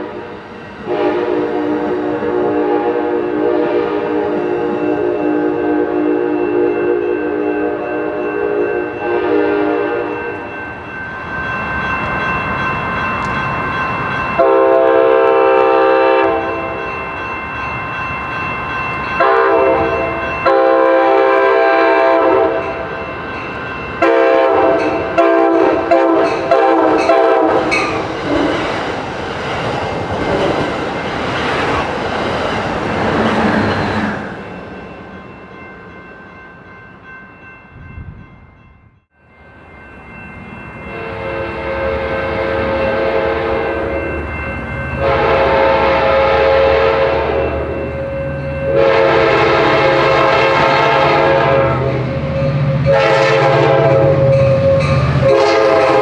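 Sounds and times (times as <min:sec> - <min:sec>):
train rumbling past: 0:00.0 - 0:56.0
locomotive air horn blasts: 0:00.9 - 0:10.2, 0:14.4 - 0:16.7, 0:19.2 - 0:22.8, 0:24.0 - 0:27.8, 0:40.9 - 0:44.0, 0:45.0 - 0:47.7, 0:48.7 - 0:52.0, 0:52.8 - 0:54.4, 0:55.2 - 0:56.0.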